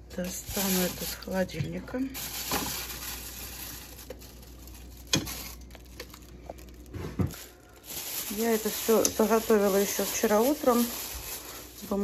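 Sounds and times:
plastic bag rustling and crinkling: 0.0 - 12.0.

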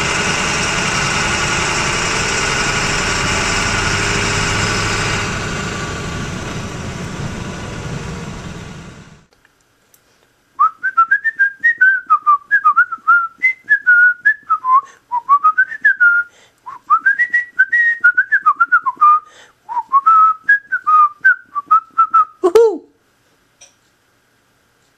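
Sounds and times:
person whistling a tune: 10.6 - 22.8.

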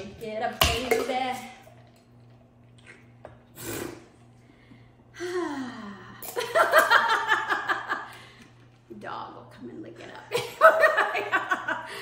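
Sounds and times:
woman laughing heartily: 6.4 - 8.2, 10.4 - 12.0.

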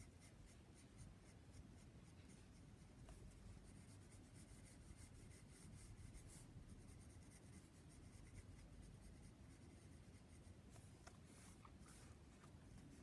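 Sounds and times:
pencil scratching on paper: 0.0 - 13.0.

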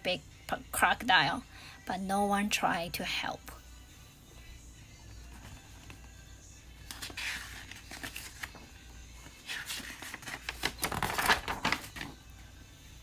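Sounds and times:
paper pages rustling and turning: 6.8 - 12.3.

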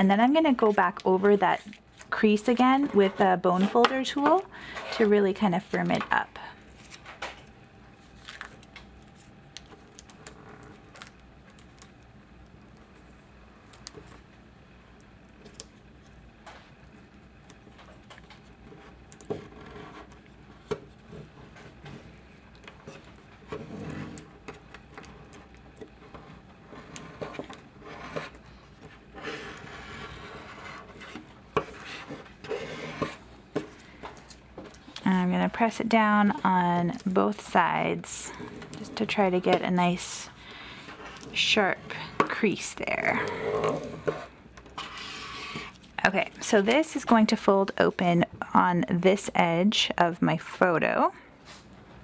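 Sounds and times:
plastic sheet crinkling: 8.0 - 12.0
scraping on plastic sheet: 25.0 - 35.0, 43.0 - 46.4.

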